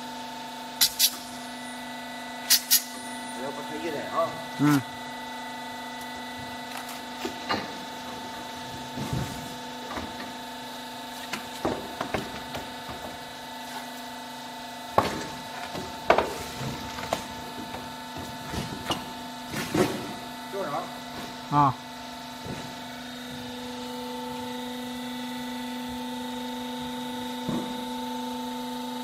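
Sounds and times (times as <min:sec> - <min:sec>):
steady machine hum: 0:00.0 - 0:29.0.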